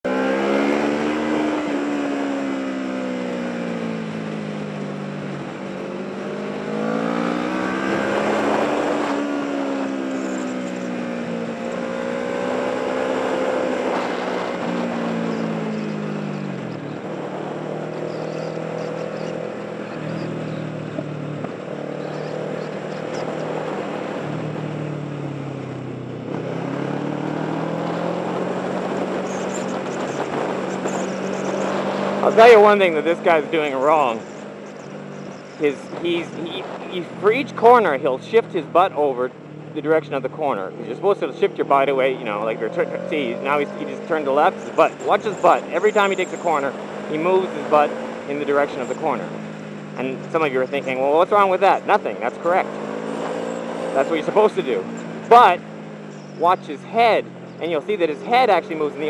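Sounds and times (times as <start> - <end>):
motorcycle engine revving: 0.0 - 59.0
wind noise: 27.5 - 32.4.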